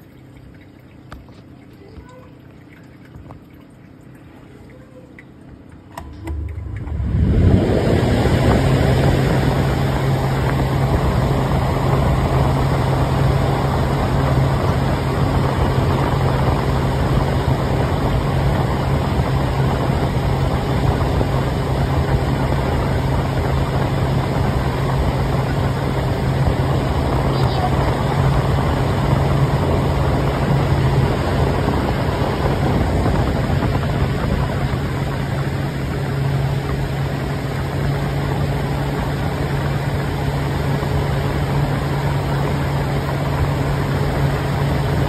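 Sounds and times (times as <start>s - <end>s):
washing machine motor whirring: 0.0s - 45.0s.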